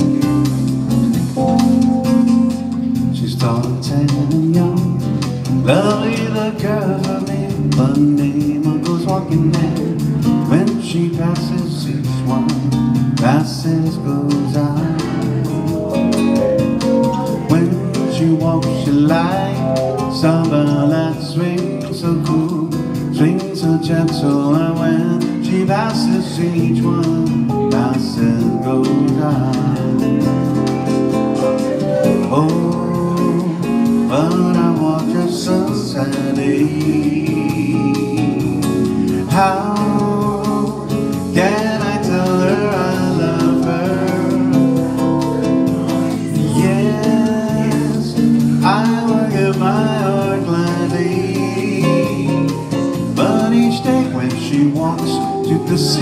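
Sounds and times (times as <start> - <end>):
acoustic guitar: 0.0 - 56.0
electronic keyboard: 0.0 - 56.0.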